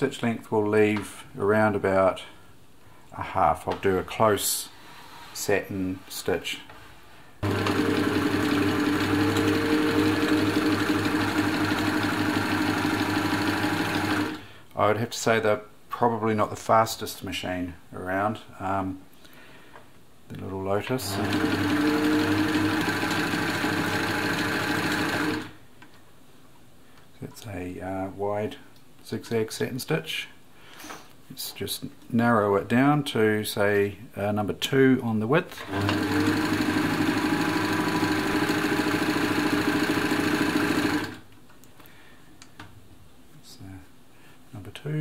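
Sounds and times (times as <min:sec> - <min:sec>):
sewing machine running: 0:07.4 - 0:14.4, 0:21.0 - 0:25.6, 0:35.6 - 0:41.2.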